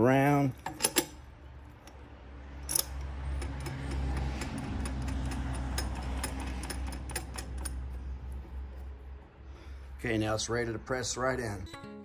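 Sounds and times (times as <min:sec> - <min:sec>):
nut spinning on threaded rod: 0:02.6 - 0:08.0.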